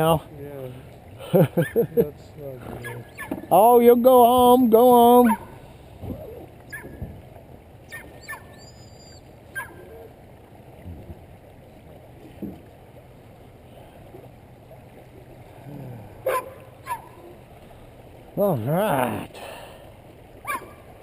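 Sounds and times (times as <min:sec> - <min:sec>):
river water rushing: 0:00.0 - 0:21.0
high chirping calls: 0:02.8 - 0:03.4.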